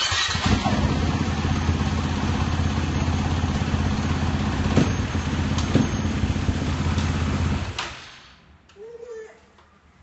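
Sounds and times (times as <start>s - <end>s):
dirt bike engine idling: 0.5s - 7.8s.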